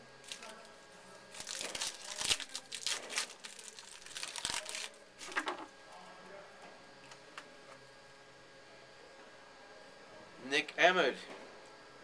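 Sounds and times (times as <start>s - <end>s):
plastic wrapper crinkling and tearing: 0.2s - 5.6s.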